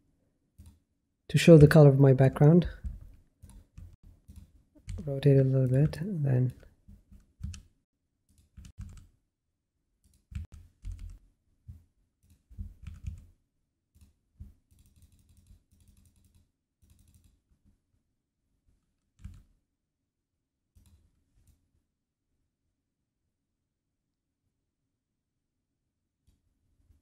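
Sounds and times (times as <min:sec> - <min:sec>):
computer keyboard keystrokes: 0:07.2 - 0:07.7, 0:08.3 - 0:09.1, 0:10.1 - 0:11.2, 0:12.3 - 0:13.2, 0:14.7 - 0:17.3.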